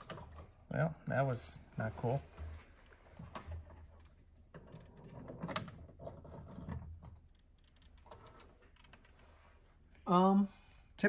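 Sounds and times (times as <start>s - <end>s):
faint knocks and rattles: 2.0s - 9.1s.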